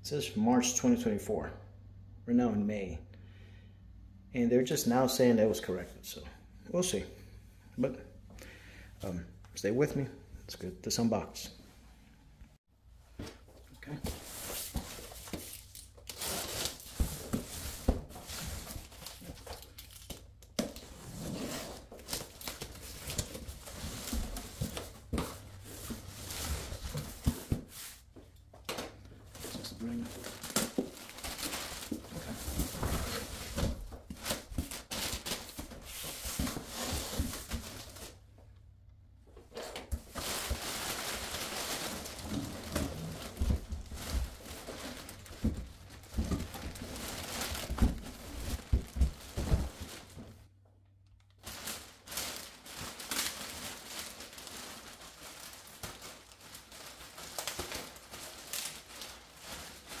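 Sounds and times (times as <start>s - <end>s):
plastic bag crinkling: 29.6s - 35.6s, 40.1s - 50.1s, 51.3s - 60.0s.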